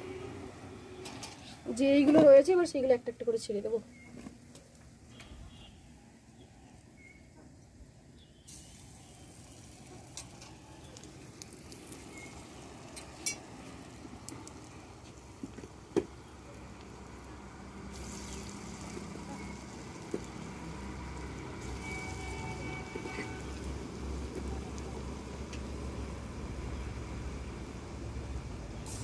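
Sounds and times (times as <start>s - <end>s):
fritters sizzling in hot oil: 0.0s - 29.0s
oil popping: 8.5s - 27.6s.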